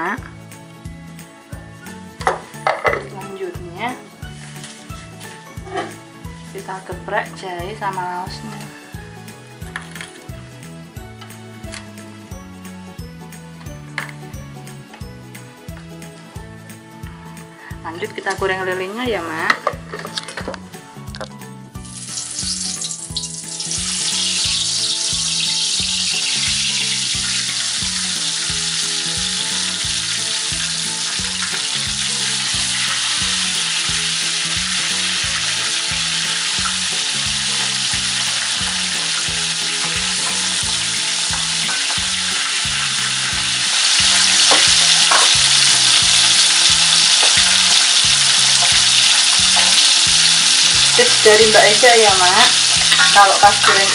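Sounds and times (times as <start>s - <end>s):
fish frying in hot oil: 21.8s - 53.9s.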